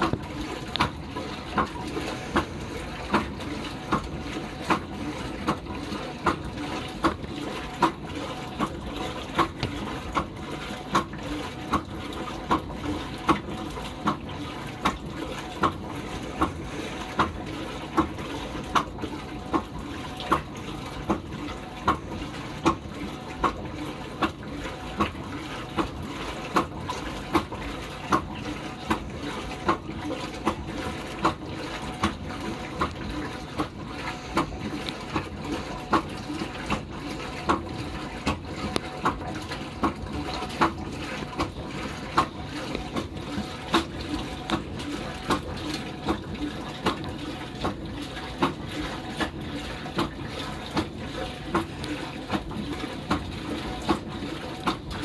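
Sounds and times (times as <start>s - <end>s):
agitator swish and clunk: 0.0s - 55.0s
water sloshing in washing machine: 0.0s - 55.0s.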